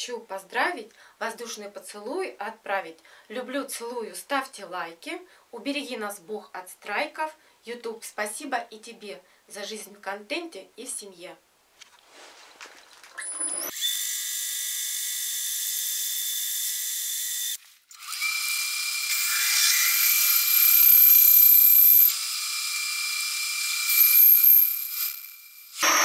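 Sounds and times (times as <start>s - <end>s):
drill boring into metal squealing: 13.2s - 26.0s.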